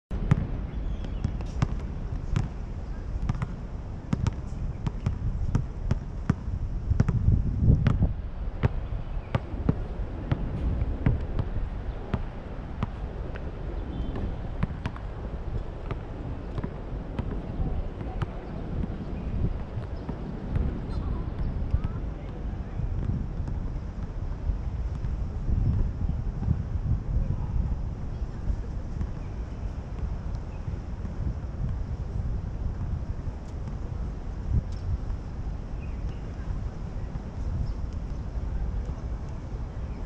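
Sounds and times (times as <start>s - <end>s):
steady low rumble: 0.1s - 40.0s
basketballs bouncing on court: 0.2s - 2.6s, 3.2s - 8.0s, 15.8s - 19.0s.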